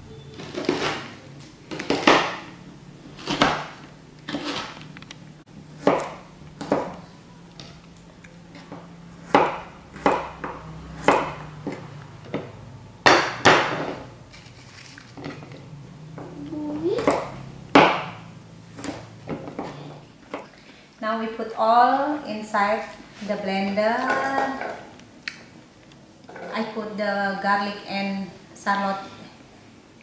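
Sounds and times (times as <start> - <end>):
knife chopping on plastic board: 0.4 - 1.1, 1.7 - 2.5, 3.2 - 4.8, 5.8 - 7.0, 9.2 - 14.0, 17.0 - 18.2.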